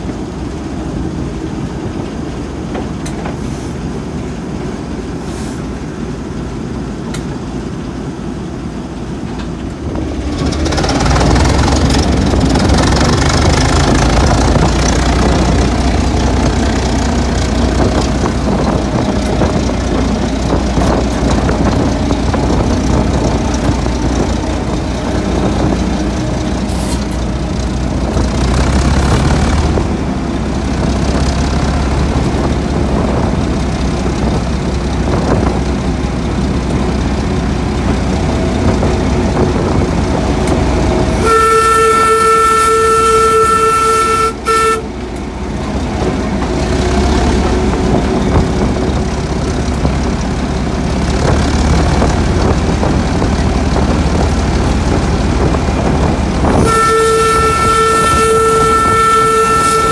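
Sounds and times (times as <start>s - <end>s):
diesel locomotive engine running: 0.0s - 59.9s
locomotive horn blast: 40.7s - 45.4s, 55.4s - 59.9s.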